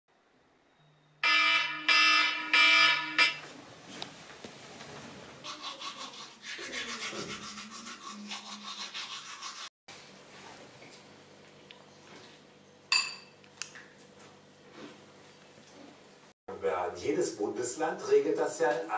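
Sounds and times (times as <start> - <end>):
electronic alarm beeping: 0.7 - 3.4.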